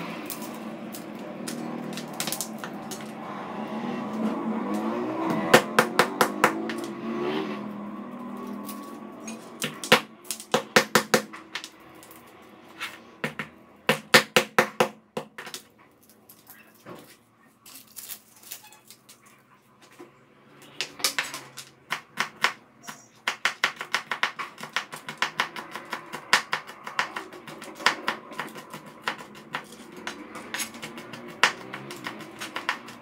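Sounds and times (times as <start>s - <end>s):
knife chopping on cutting board: 5.3s - 6.9s, 21.9s - 33.0s.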